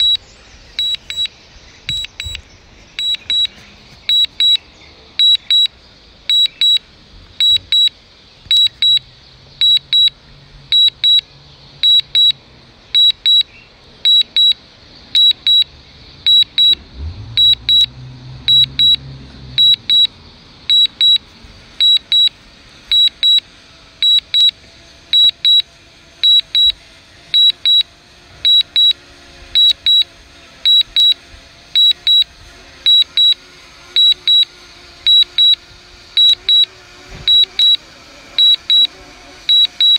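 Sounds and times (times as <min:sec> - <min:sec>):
high double beep: 0:00.0 - 0:00.2, 0:00.8 - 0:01.3, 0:01.9 - 0:02.4, 0:03.0 - 0:03.5, 0:04.1 - 0:04.6, 0:05.2 - 0:05.7, 0:06.3 - 0:06.8, 0:07.4 - 0:07.9, 0:08.5 - 0:09.0, 0:09.6 - 0:10.1, 0:11.8 - 0:12.4, 0:13.0 - 0:13.4, 0:14.1 - 0:14.6, 0:15.2 - 0:15.7, 0:16.3 - 0:16.8, 0:17.4 - 0:17.9, 0:18.5 - 0:19.0, 0:19.6 - 0:20.1, 0:20.7 - 0:21.2, 0:21.8 - 0:22.3, 0:22.9 - 0:23.4, 0:24.0 - 0:24.5, 0:25.2 - 0:25.6, 0:26.2 - 0:26.8, 0:29.6 - 0:30.1, 0:30.7 - 0:31.2, 0:31.8 - 0:32.3, 0:32.9 - 0:33.4, 0:34.0 - 0:34.5, 0:37.3 - 0:37.8, 0:39.5 - 0:39.9.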